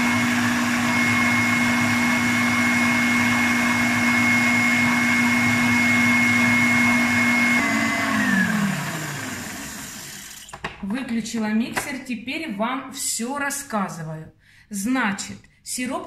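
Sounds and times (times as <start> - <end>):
stand mixer whisking: 0.0 - 10.5.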